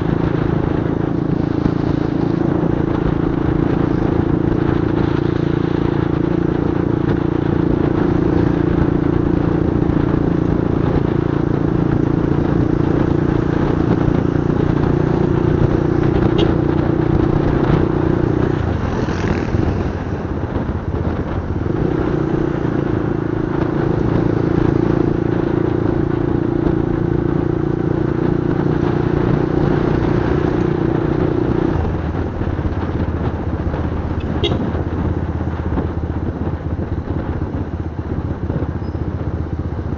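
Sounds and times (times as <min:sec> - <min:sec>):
motorcycle engine cruising: 0:00.0 - 0:39.9
rushing noise: 0:12.5 - 0:23.7.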